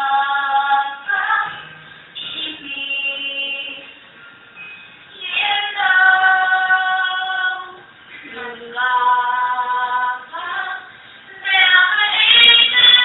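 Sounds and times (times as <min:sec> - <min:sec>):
girl singing: 0:05.1 - 0:13.0.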